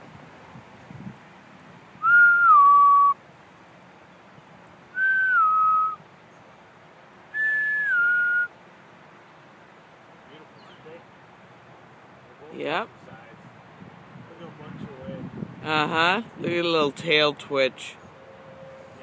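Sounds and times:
person whistling two-note calls: 0:02.0 - 0:03.2, 0:05.0 - 0:06.0, 0:07.4 - 0:08.5.

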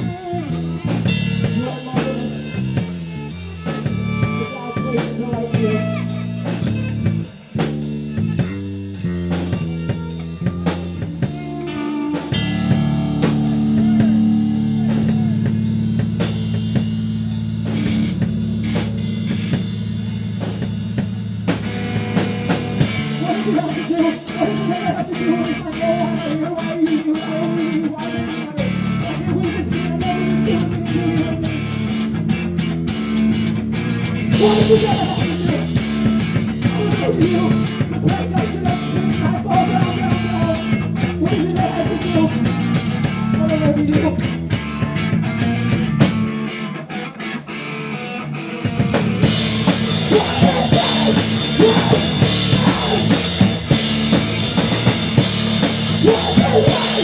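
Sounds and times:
drums: 0:00.0 - 0:57.0
rock band playing: 0:00.0 - 0:57.0
wavering guitar line: 0:00.0 - 0:57.0
low bass note: 0:10.5 - 0:23.3.

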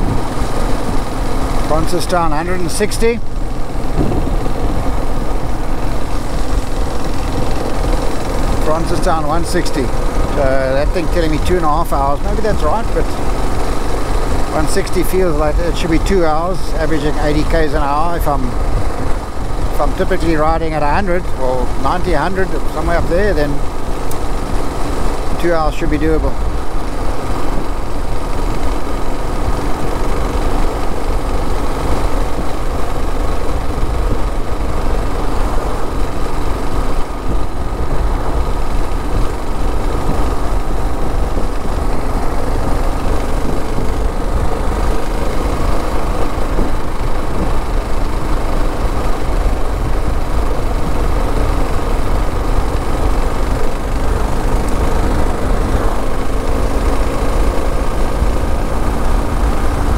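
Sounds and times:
wind noise on microphone: 0:00.0 - 0:01.7, 0:03.0 - 0:08.7, 0:26.3 - 0:59.9
motorcycle engine droning: 0:00.0 - 0:59.9.

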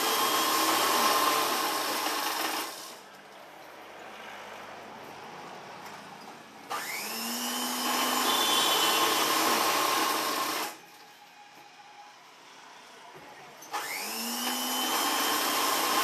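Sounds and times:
sewing machine motor whirring: 0:00.0 - 0:03.0, 0:06.7 - 0:10.8, 0:13.7 - 0:16.0.

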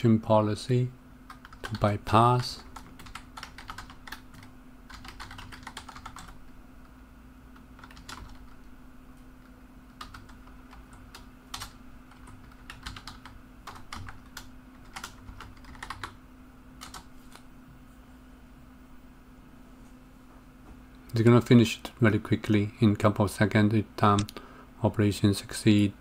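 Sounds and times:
faint steady hum: 0:00.0 - 0:26.0
computer keyboard keystrokes: 0:01.3 - 0:01.8, 0:02.6 - 0:06.4, 0:07.8 - 0:08.6, 0:09.9 - 0:16.2, 0:16.8 - 0:17.4.

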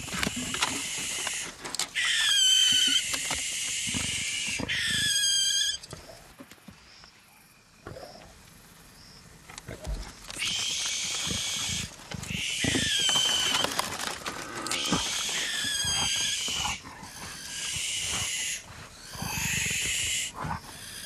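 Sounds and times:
young animals screeching: 0:00.2 - 0:05.9, 0:10.3 - 0:21.0.

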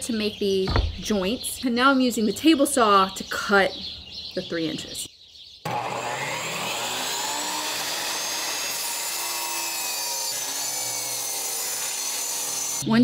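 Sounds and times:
table saw ripping wood: 0:05.7 - 0:12.8.

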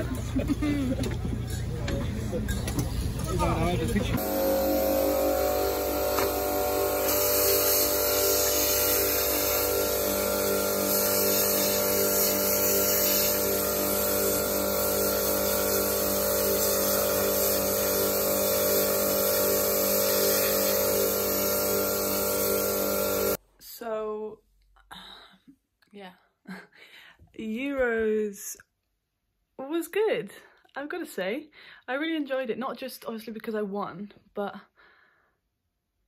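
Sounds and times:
pressure washer pump humming: 0:02.7 - 0:23.4
water jet spraying: 0:04.2 - 0:23.4.

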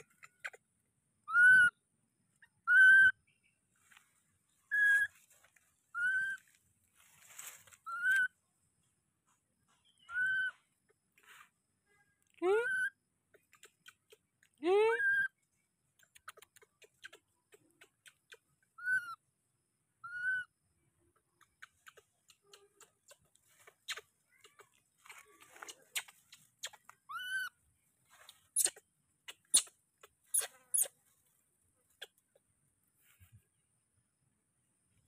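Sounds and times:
baby monkey coo calls: 0:01.3 - 0:01.8, 0:02.5 - 0:03.1, 0:06.0 - 0:06.4, 0:07.8 - 0:08.3, 0:10.0 - 0:10.6, 0:12.6 - 0:13.0, 0:18.3 - 0:19.2, 0:20.0 - 0:20.5, 0:21.6 - 0:27.5, 0:30.3 - 0:30.9
rustling and crackling leaves: 0:03.8 - 0:08.2, 0:23.2 - 0:27.0.

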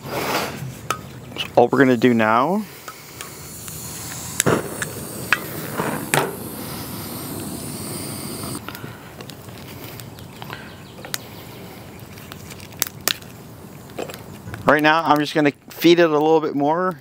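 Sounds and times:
torch hissing: 0:02.5 - 0:08.8
fire crackling and popping: 0:02.8 - 0:10.2, 0:12.2 - 0:14.6.

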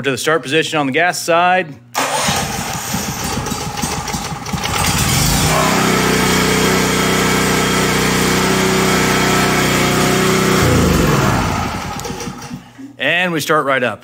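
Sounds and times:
electric starter cranking engine: 0:02.0 - 0:12.7
generator engine running: 0:02.0 - 0:12.8.

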